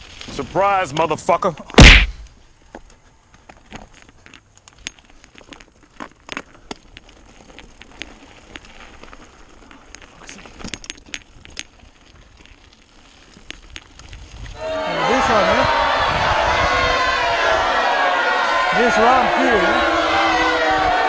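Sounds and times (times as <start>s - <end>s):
bike tyres crunching over gravel: 0.0s - 15.5s
gravel and bike rattling: 0.0s - 15.6s.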